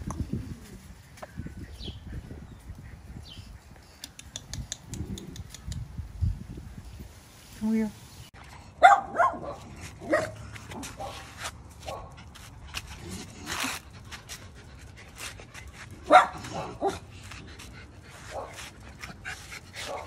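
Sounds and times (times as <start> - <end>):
small dogs barking: 8.8 - 12.2, 16.0 - 17.1.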